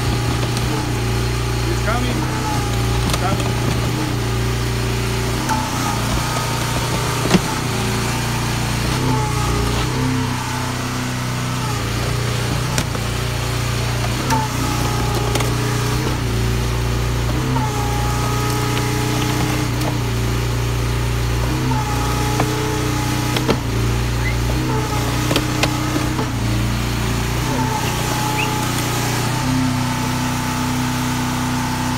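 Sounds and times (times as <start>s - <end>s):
hydraulic power pack engine humming: 0.0s - 31.9s
brief high squeals: 27.5s - 28.8s.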